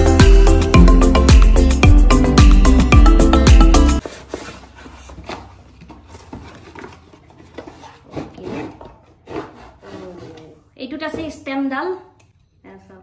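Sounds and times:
loud music: 0:00.0 - 0:04.0
cardboard packaging rubbing and scraping: 0:04.0 - 0:10.7.

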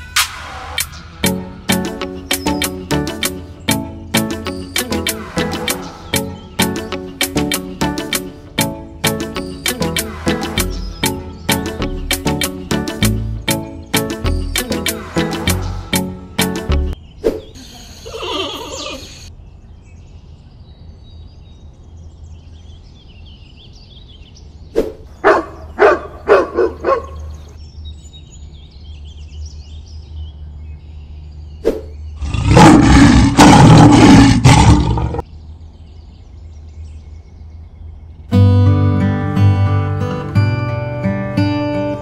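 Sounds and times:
faint bird chirping: 0:00.8 - 0:33.3
dog barking: 0:25.2 - 0:27.3
lion roar: 0:32.2 - 0:35.2.

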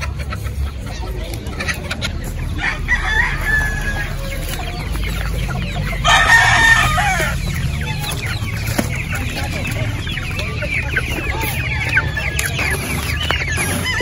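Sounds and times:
chicken calling: 0:00.0 - 0:14.0
rooster crowing: 0:02.6 - 0:04.3, 0:06.0 - 0:07.4.

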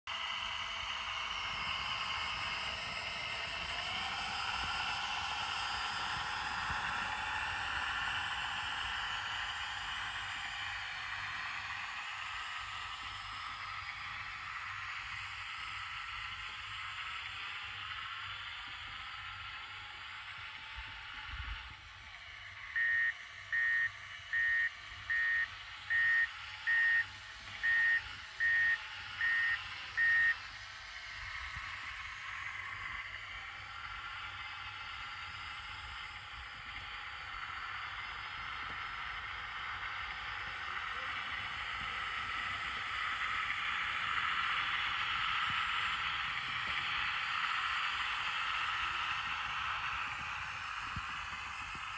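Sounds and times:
model vehicle motor whine: 0:00.1 - 0:51.9
reversing warning beeps: 0:22.7 - 0:30.4.

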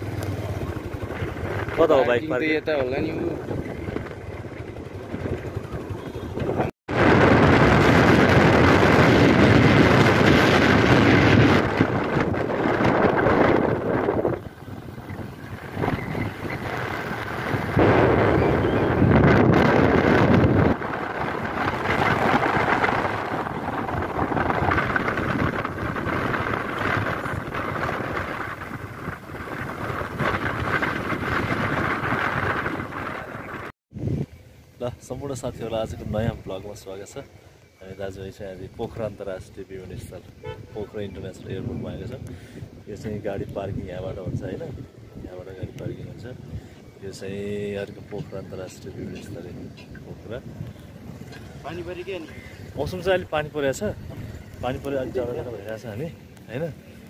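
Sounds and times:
motorcycle engine running: 0:00.0 - 0:34.6
wind noise on microphone: 0:00.0 - 0:36.8, 0:38.0 - 0:57.0
vehicle travelling on road: 0:00.0 - 0:57.0.

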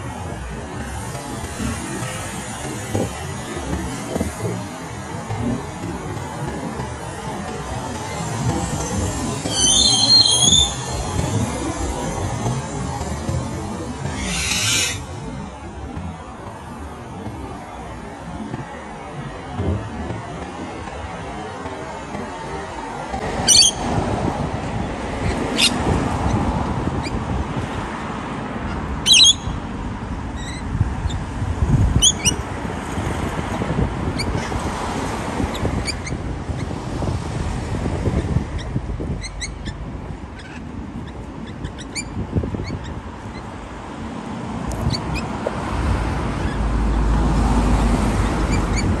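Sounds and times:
lorikeet screeching: 0:09.5 - 0:11.1, 0:14.1 - 0:15.0, 0:23.5 - 0:23.8, 0:25.6 - 0:25.8, 0:29.0 - 0:29.6, 0:32.0 - 0:32.4.

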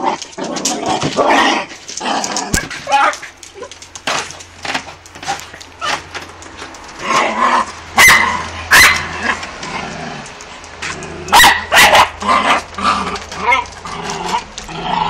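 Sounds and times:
dog growling: 0:00.0 - 0:03.9, 0:07.0 - 0:15.0
dog barking sharply: 0:08.0 - 0:09.2, 0:11.3 - 0:12.2.

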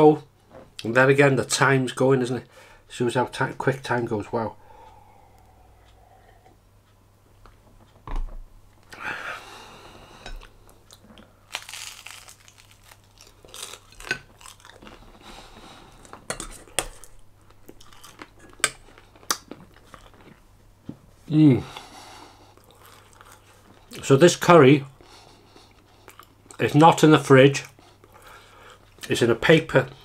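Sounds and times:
crunching and chewing: 0:10.3 - 0:20.4, 0:22.5 - 0:24.1, 0:25.0 - 0:26.7.

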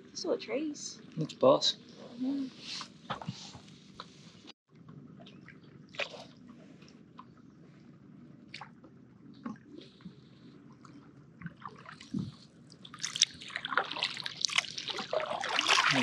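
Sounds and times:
paddle splashing in water: 0:12.9 - 0:16.0.

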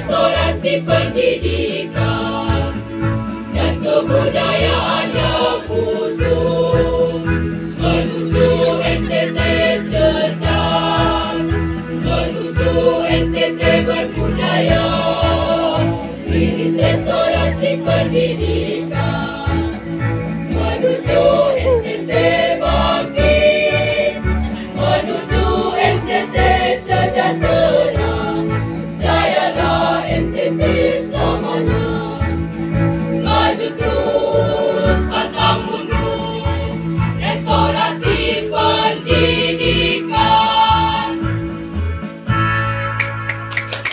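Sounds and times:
choir singing: 0:00.0 - 0:41.4.

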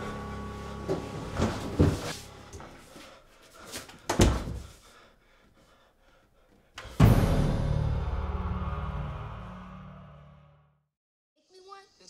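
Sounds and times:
low horror music hit: 0:00.0 - 0:02.6, 0:06.8 - 0:10.8.

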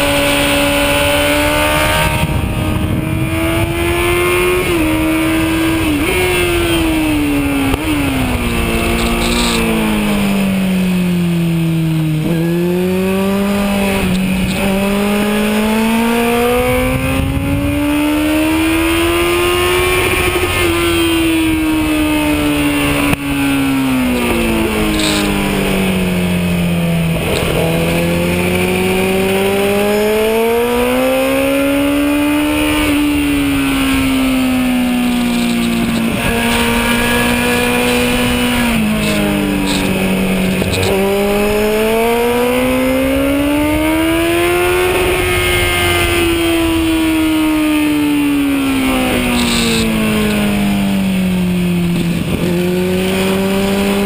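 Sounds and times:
wind rushing: 0:00.0 - 0:10.7
motorcycle engine at racing speed: 0:00.0 - 0:54.0.

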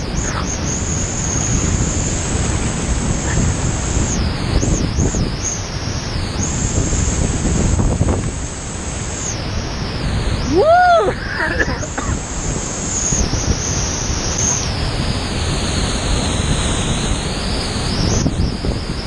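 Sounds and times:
whitewater rushing: 0:00.0 - 0:19.0
person crying out: 0:10.5 - 0:12.0.

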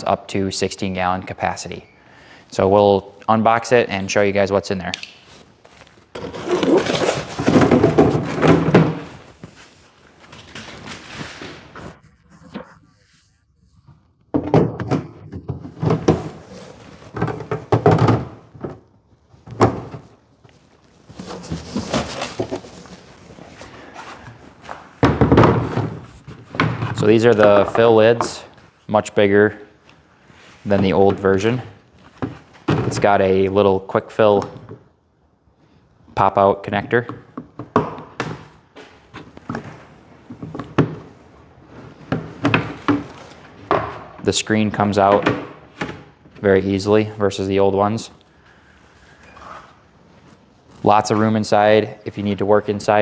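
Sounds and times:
cardboard and foam scraping rustle: 0:20.9 - 0:24.2.

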